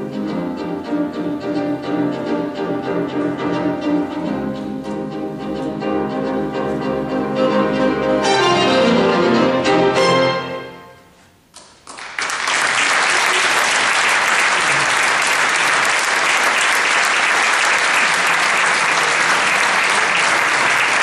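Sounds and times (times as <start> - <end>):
violin saxophone and piano trio: 0.0 - 11.2
audience applause: 11.8 - 21.0.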